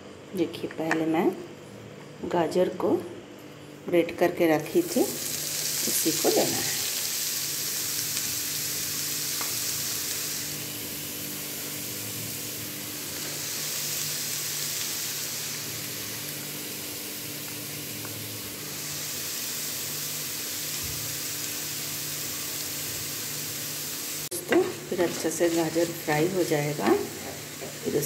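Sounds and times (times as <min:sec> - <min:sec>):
carrot sizzling in a pan: 0:04.6 - 0:28.0.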